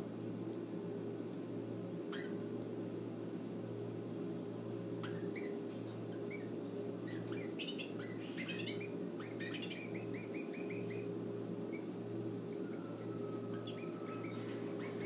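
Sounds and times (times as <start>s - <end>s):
chicks cheeping: 5.0s - 15.0s.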